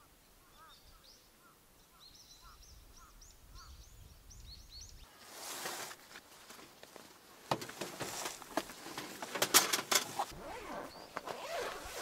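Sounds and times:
fabric bag rustling: 7.6 - 12.0.

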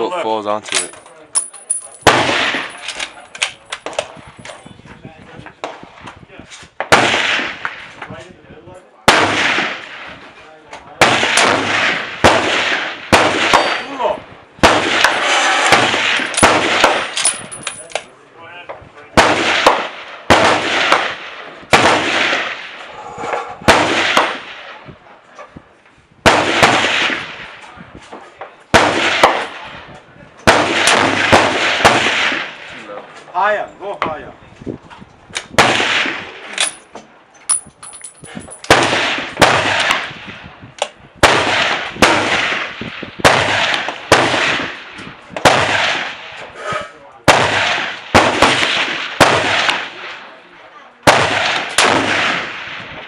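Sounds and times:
echoing gunshots: 2.0 - 3.1, 6.8 - 8.0, 9.0 - 10.2, 10.9 - 17.6, 19.1 - 24.9, 26.2 - 27.6, 28.7 - 32.8, 35.5 - 36.6, 38.7 - 40.5, 41.2 - 46.4, 47.2 - 50.4, 51.0 - 53.0.

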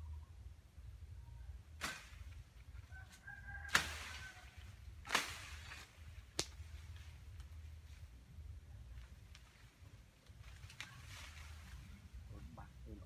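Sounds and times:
bamboo branches rustling: 1.6 - 13.0
branch cracking: 1.7 - 7.6, 8.9 - 12.0
rooster crowing: 2.8 - 4.8.

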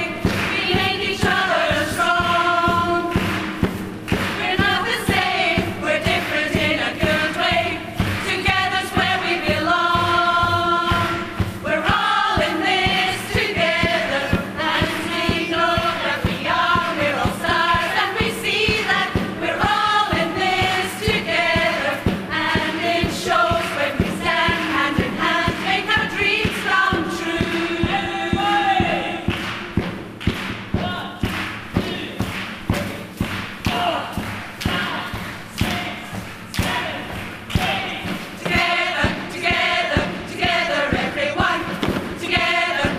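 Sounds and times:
women's choir singing: 0.0 - 29.9, 32.8 - 42.9
steady beat: 0.0 - 42.9.

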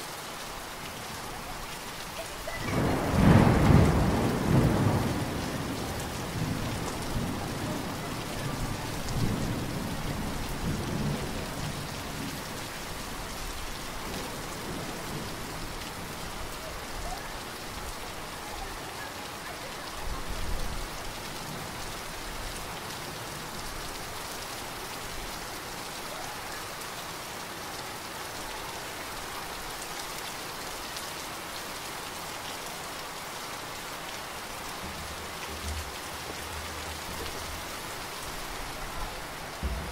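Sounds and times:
heavy rain pouring onto water: 0.0 - 39.9
thunder rumble: 2.5 - 12.4, 38.6 - 39.9.

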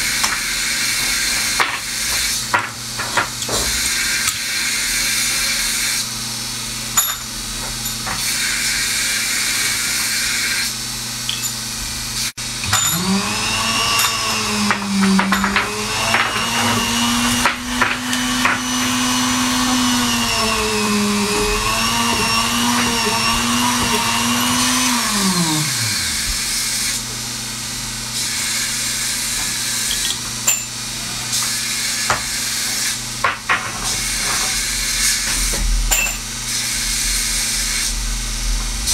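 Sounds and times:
small electric motor humming: 12.1 - 27.2.

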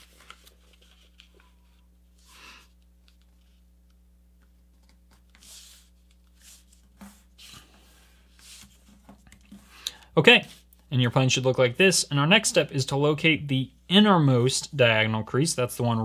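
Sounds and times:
paper rustling being folded: 0.0 - 2.3, 4.6 - 9.7
faint steady hum: 0.0 - 16.0.

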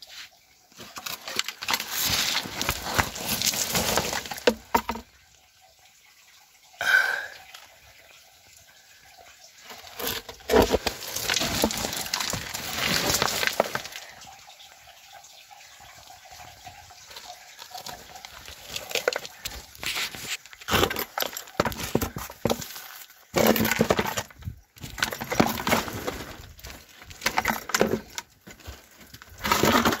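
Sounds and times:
rock and gravel crunching: 0.8 - 5.0, 9.7 - 14.2, 17.2 - 30.0.

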